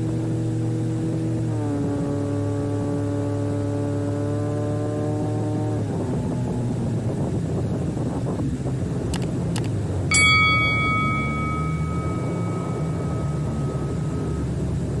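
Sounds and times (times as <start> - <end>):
bell-like ding: 10.1 - 15.0.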